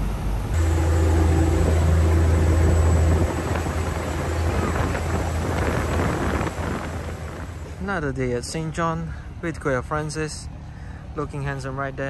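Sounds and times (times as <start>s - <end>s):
ferry engine low drone: 0.0s - 12.0s.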